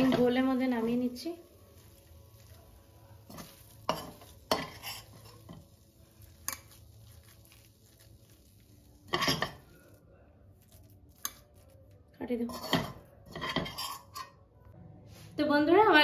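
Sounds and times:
metal spoon scraping a wok: 0:03.3 - 0:05.6, 0:12.5 - 0:14.4.

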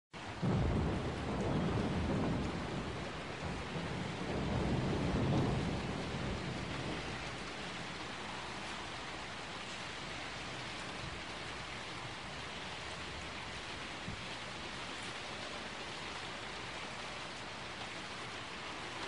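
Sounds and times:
heavy rain: 0:00.1 - 0:19.0
rolling thunder: 0:00.2 - 0:09.6.

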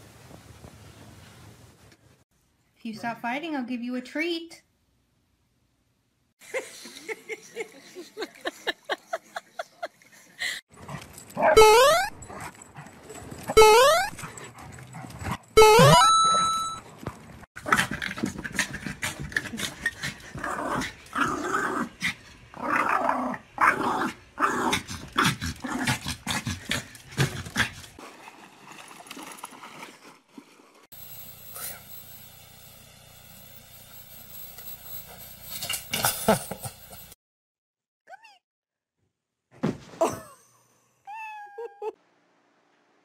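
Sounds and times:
short steady beep: 0:13.6 - 0:14.1, 0:15.6 - 0:16.8
small dog barking and growling: 0:20.4 - 0:27.8.

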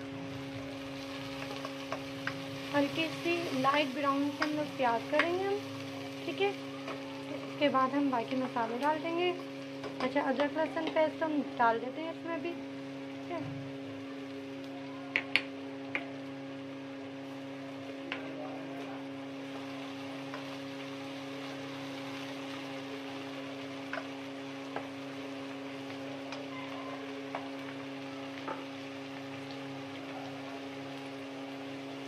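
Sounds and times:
onions sizzling in hot oil: 0:00.0 - 0:32.0
steady hum: 0:00.0 - 0:32.0
spatula tapping pan: 0:04.3 - 0:05.4.

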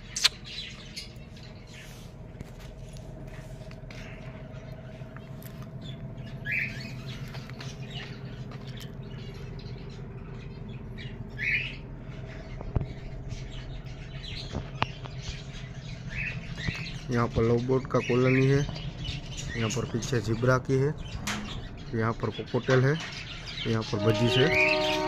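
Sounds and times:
birds chirping: 0:00.0 - 0:25.0
steady low hum: 0:00.0 - 0:25.0
loud bird squawks: 0:23.9 - 0:25.0.

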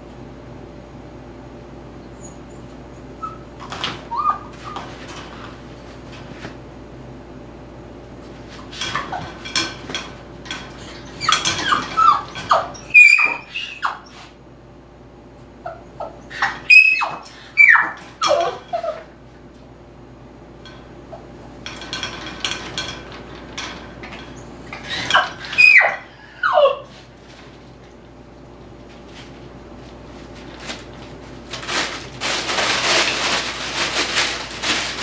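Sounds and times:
puppy whining and yipping: 0:02.1 - 0:04.9, 0:11.0 - 0:14.2, 0:15.6 - 0:19.1, 0:24.7 - 0:27.0.

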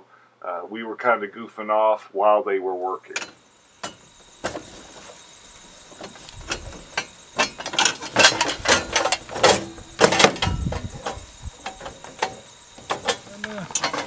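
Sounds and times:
metal boxes clanking and rattling: 0:06.0 - 0:14.0.

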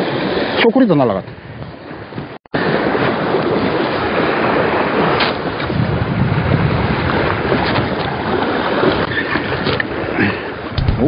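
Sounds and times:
wind on microphone: 0:00.0 - 0:11.0
sea waves washing on rocks: 0:02.6 - 0:11.0.

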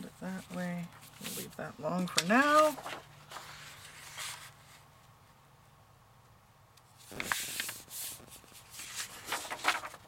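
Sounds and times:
paper rustling and crinkling: 0:00.3 - 0:04.8, 0:07.0 - 0:10.0.

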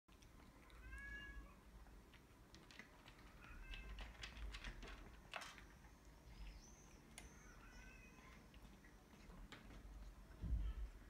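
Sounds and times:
cats crunching dry kibble: 0:00.1 - 0:07.3
cat meowing faintly: 0:00.8 - 0:01.6.

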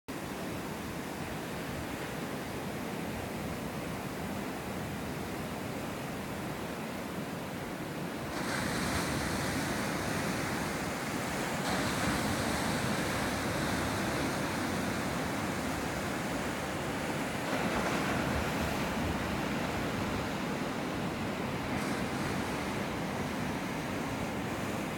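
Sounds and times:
surf rushing: 0:07.7 - 0:24.9.

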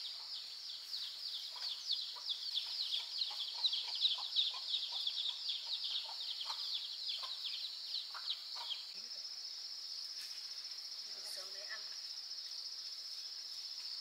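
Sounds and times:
birds chirping: 0:00.0 - 0:09.1
high insect trill: 0:00.0 - 0:14.0.

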